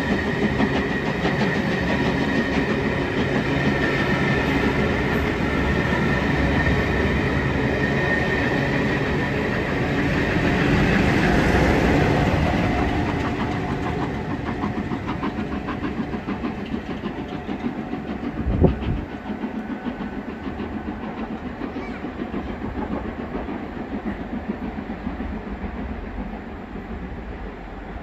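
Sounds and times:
train wheels clattering: 0.0 - 27.6.

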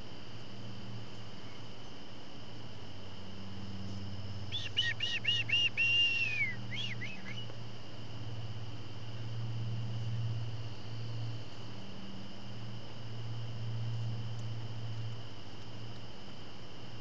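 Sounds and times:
crickets chirping: 0.0 - 17.0
bird whistling call: 4.5 - 7.5.

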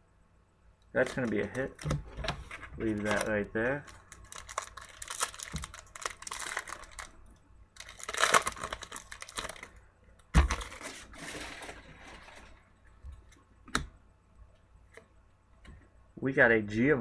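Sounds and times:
cards rustling and clicking: 1.0 - 7.1.

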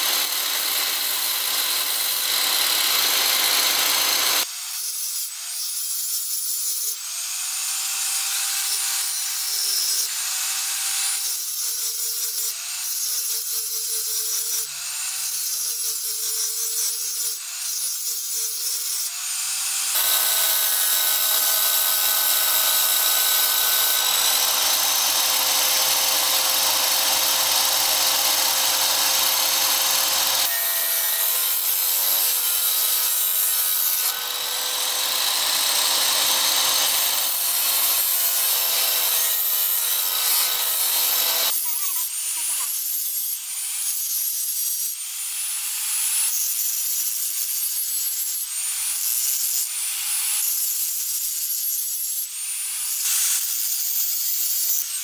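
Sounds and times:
angle grinder grinding steel: 0.0 - 55.0
cut-off saw grinding steel: 0.0 - 55.0.

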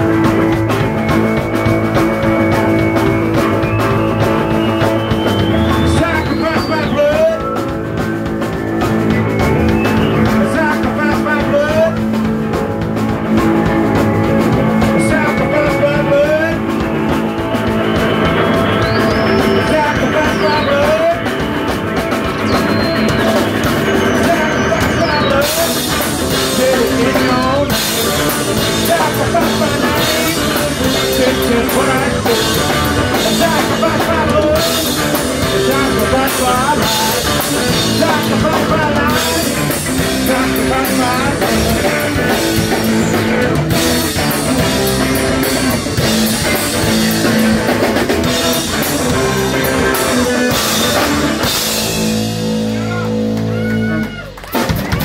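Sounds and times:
drum kit and cymbals: 0.0 - 55.0
electric guitar: 0.0 - 55.0
person singing: 14.7 - 16.8, 18.7 - 21.4, 22.4 - 51.8.

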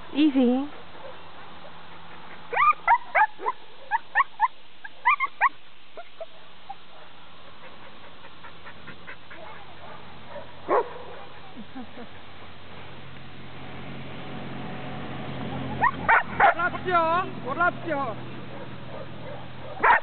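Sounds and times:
dog yipping: 2.5 - 7.1, 15.5 - 16.6, 18.6 - 20.0.

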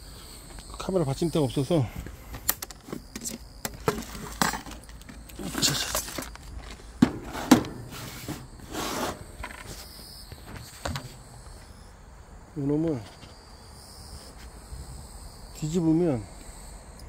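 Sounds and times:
rummaging in a plastic basket: 2.7 - 9.8.

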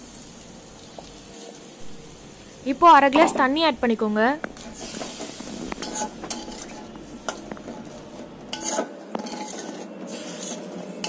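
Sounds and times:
spoon stirring and scraping a pan: 4.5 - 11.0.

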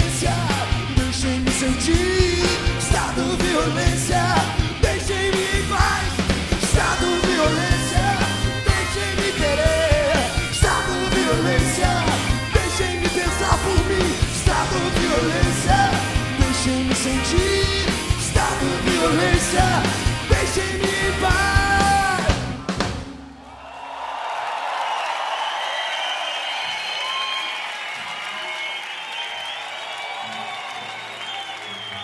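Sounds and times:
man singing and shouting: 0.0 - 22.5
punk rock band playing: 0.0 - 23.4.

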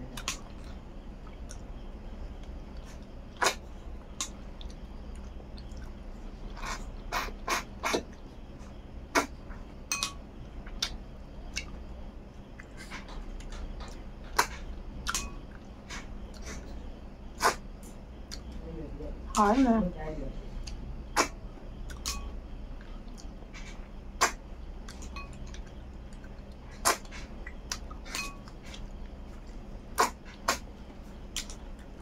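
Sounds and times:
steady low hum: 0.0 - 32.0
wet eating smacks and clicks: 31.3 - 32.0.

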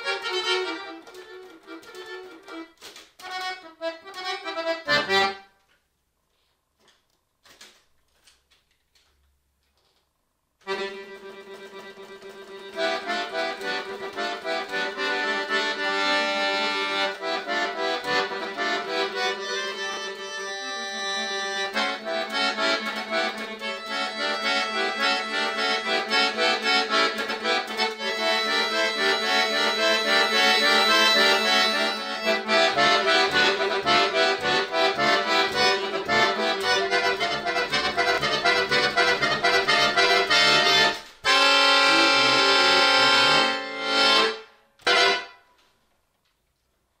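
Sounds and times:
accordion chord: 0.0 - 5.6, 10.6 - 45.6
accordion low drone: 0.0 - 5.6, 10.6 - 45.4
fast accordion melody: 0.0 - 5.6, 10.6 - 45.4.

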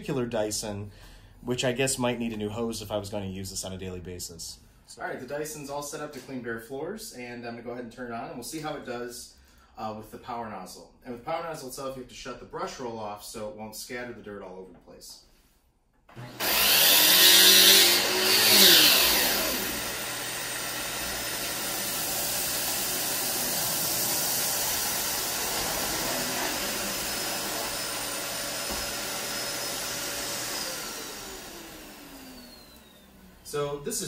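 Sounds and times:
vacuum motor falling whine: 16.1 - 33.5
vacuum cleaner running: 16.1 - 34.0.

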